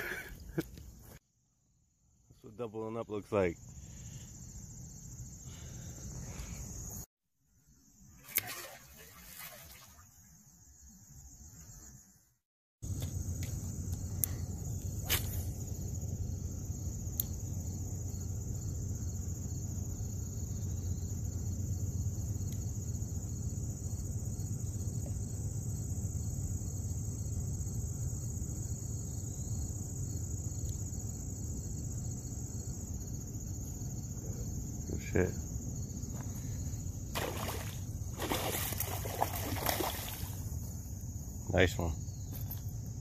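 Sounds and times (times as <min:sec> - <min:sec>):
insects chirring: 0:00.0 - 0:01.2, 0:01.9 - 0:43.0.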